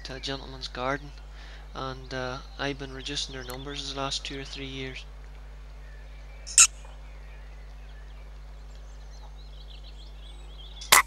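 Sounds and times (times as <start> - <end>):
faint birdsong: 0.0 - 11.0
low steady hum: 0.0 - 11.0
short sharp high-pitched sound: 6.5 - 6.7.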